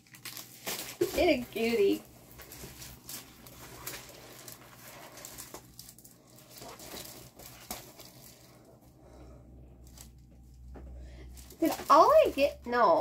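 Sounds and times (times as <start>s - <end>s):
canvas and plastic film crinkling: 0.0s - 9.2s, 9.8s - 13.0s.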